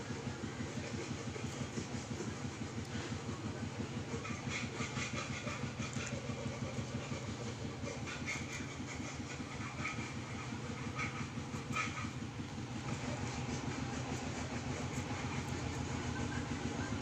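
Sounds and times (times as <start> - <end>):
engine running with flutter: 0.0 - 17.0.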